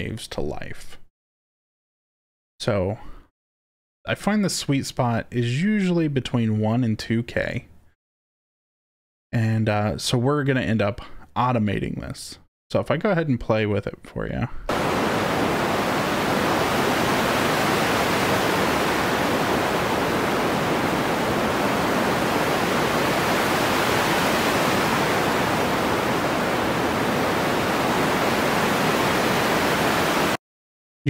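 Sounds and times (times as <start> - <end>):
filtered rushing hiss: 14.7 - 30.4.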